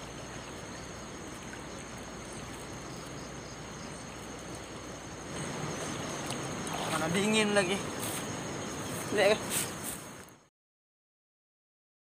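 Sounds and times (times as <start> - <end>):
river water rushing: 0.0 - 10.4.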